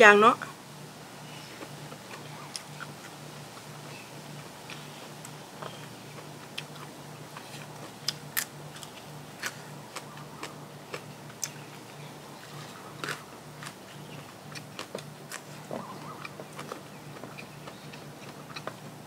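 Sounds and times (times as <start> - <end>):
faint pulsing low hum: 0.0 - 19.0
person biting and chewing food: 4.6 - 11.9, 12.5 - 18.8.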